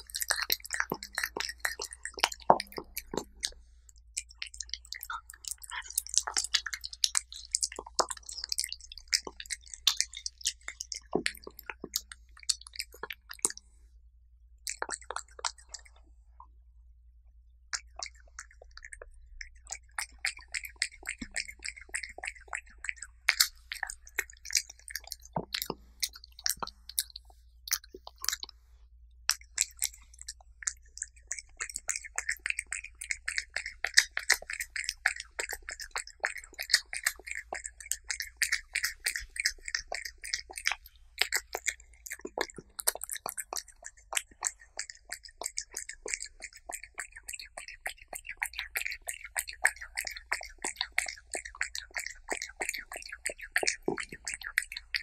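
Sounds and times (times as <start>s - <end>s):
cat chewing wet food: 0.0s - 13.9s, 14.6s - 16.4s, 17.7s - 55.0s.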